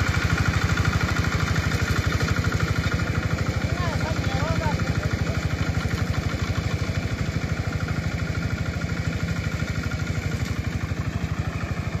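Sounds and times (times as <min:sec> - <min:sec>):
harvester engine running under load: 0:00.0 - 0:12.0.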